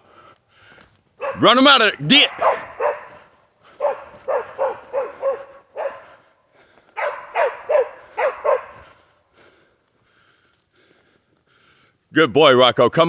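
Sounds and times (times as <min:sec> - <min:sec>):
dog barking: 0:01.2 - 0:06.3, 0:07.0 - 0:09.0.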